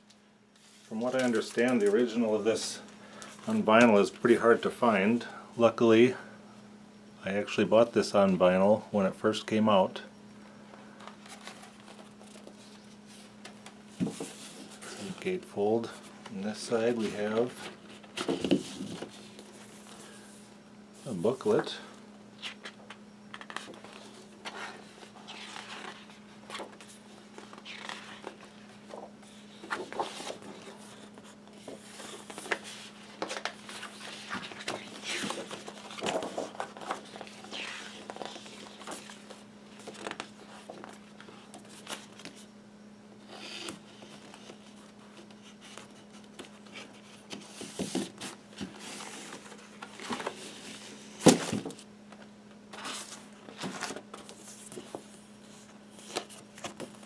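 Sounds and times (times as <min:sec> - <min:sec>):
steady low hum: 0:00.0 - 0:57.0
paper rustling: 0:00.6 - 0:04.6, 0:22.4 - 0:42.5, 0:43.3 - 0:51.8.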